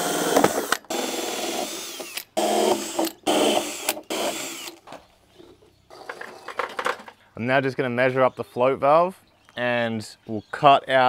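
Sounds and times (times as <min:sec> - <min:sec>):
drill cutting through plastic pipe: 0:00.0 - 0:04.8.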